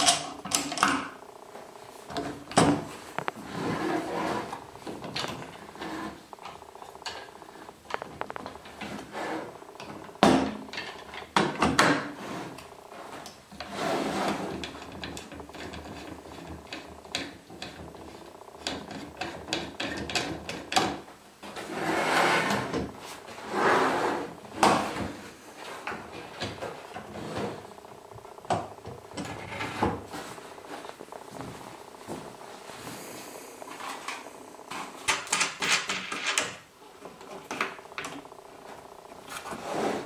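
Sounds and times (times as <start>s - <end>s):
boards scraping and sliding: 3.0s - 4.7s, 12.1s - 14.6s, 21.5s - 27.8s, 39.2s - 40.0s.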